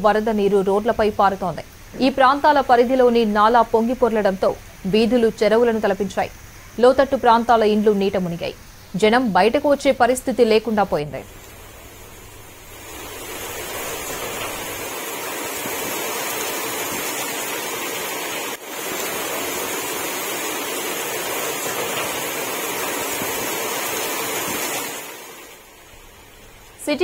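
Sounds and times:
rushing floodwater: 11.2 - 27.0.

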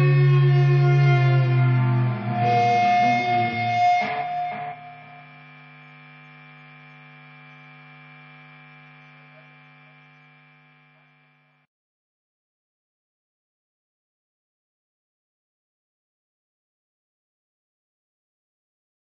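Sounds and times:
steady humming held tone: 0.0 - 11.6.

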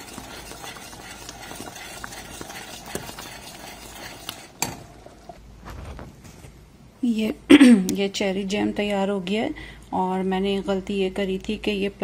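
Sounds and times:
spoon stirring thick jam: 0.0 - 5.4.

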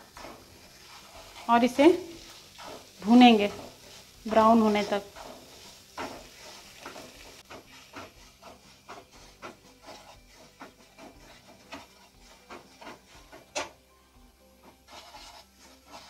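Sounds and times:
spatula scraping a pan: 0.0 - 13.9, 14.5 - 16.0.

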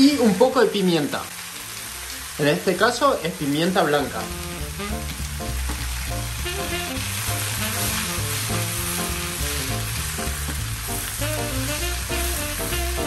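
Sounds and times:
vegetables sizzling in pan: 0.0 - 13.0
background music: 3.8 - 13.0
wooden spatula stirring: 4.1 - 13.0.

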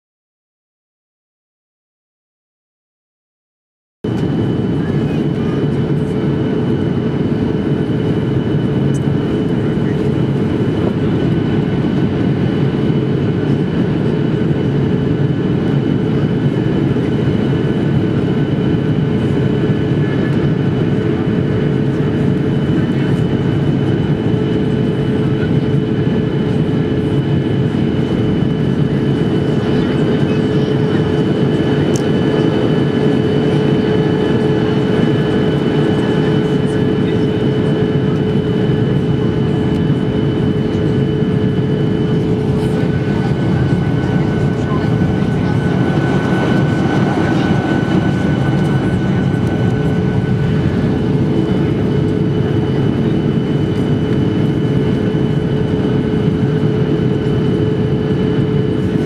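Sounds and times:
jet engines droning: 4.1 - 59.0
low hum: 40.8 - 53.1
rushing airflow: 42.0 - 52.4.

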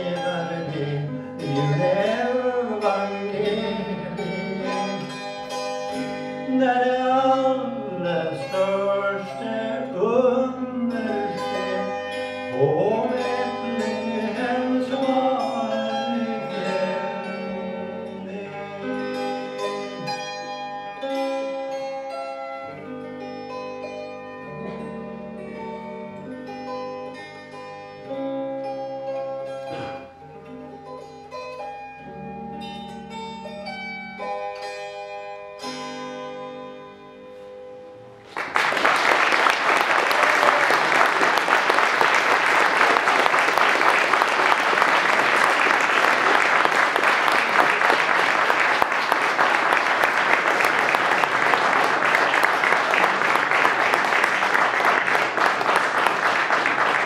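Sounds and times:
instrumental music: 0.0 - 57.0
audience applause: 38.3 - 57.0.

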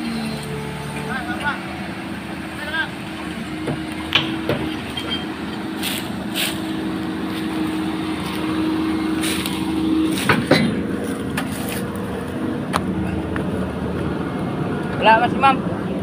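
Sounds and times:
excavator diesel engine running: 0.0 - 16.0
short clunks: 3.4 - 6.6, 10.1 - 11.6.

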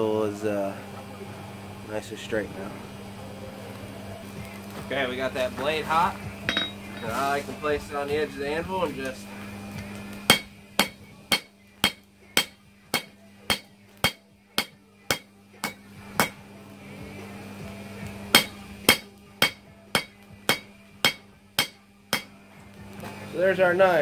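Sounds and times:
hammer ringing on anvil: 6.4 - 7.1, 10.3 - 16.4, 18.3 - 22.3.

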